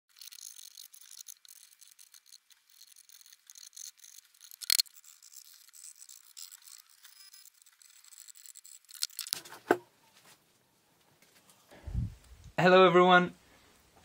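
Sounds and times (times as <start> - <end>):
charcoal scratching on rough wood: 0.2 - 9.7.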